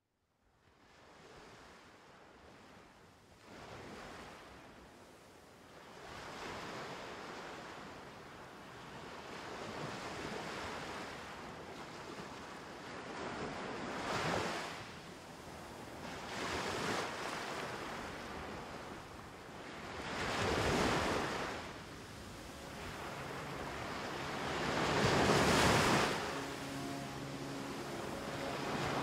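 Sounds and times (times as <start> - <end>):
waves breaking on shore: 8.9 - 29.0.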